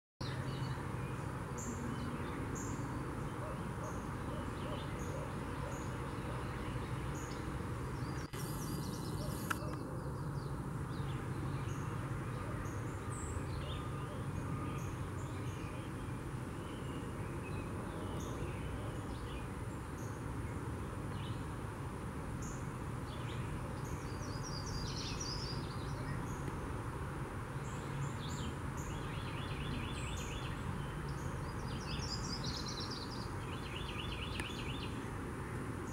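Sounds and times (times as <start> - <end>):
songbirds singing: 0.2 - 35.9
brief rustle: 8.3 - 9.8
click: 9.4 - 9.8.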